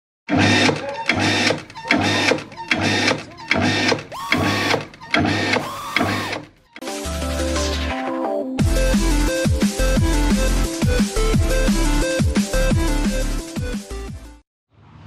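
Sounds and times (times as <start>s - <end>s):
water pump cutting in and out: 0.3s - 6.6s.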